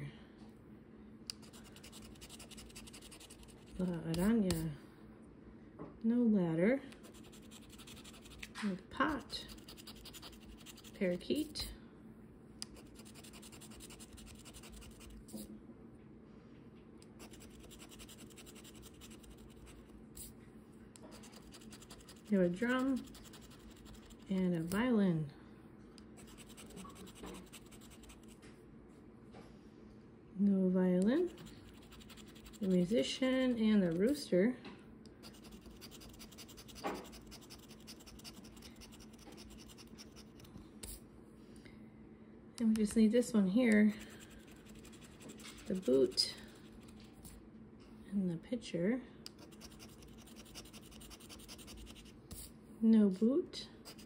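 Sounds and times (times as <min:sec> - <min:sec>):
scratch-off ticket being scratched: 0:01.4 - 0:04.6, 0:07.0 - 0:08.5, 0:09.2 - 0:11.0, 0:12.7 - 0:15.4, 0:17.2 - 0:19.8, 0:21.1 - 0:24.8, 0:26.2 - 0:28.4, 0:31.2 - 0:34.1, 0:35.2 - 0:40.5, 0:44.2 - 0:46.2, 0:49.4 - 0:52.1.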